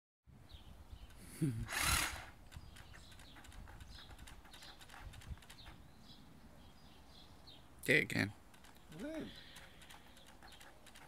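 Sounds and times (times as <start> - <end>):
hedge trimmer whir: 1.7 - 2.4
faint clicks: 8.5 - 11.0.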